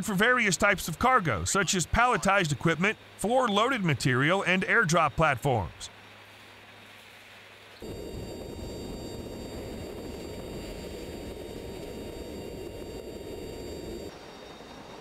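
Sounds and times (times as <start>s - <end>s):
aircraft engine drone: 7.8s - 15.0s
steady high tones: 7.8s - 15.0s.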